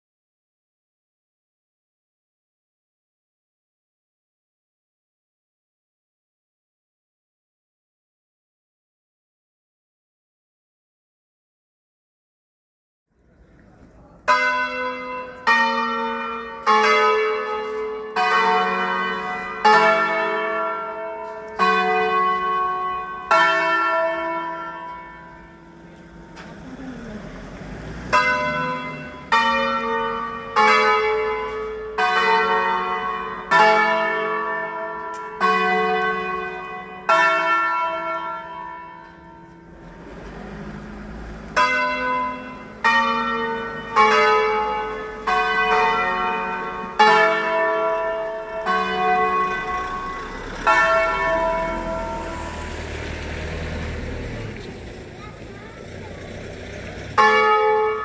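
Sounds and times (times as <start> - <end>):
church bells ringing melody: 14.1 - 58.0.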